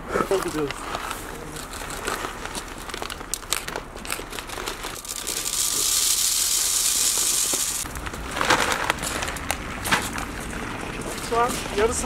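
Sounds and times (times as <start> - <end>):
plastic sack crinkling: 0.3 - 10.2
dry pet food pouring: 1.6 - 9.5.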